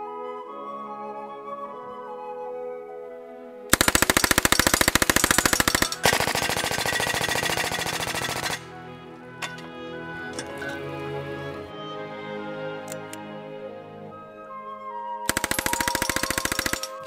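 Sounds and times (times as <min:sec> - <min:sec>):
background music: 0:00.0 - 0:17.0
submachine gun automatic fire: 0:03.7 - 0:08.7, 0:15.3 - 0:17.0.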